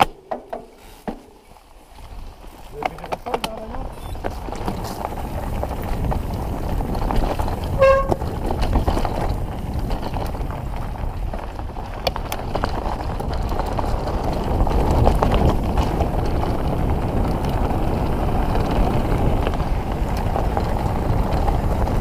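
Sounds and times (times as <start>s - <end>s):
bike tyre and wind rumble: 0.0s - 22.0s
bike rattling clicks: 2.8s - 22.0s
short honk-like squeal: 3.9s - 4.2s.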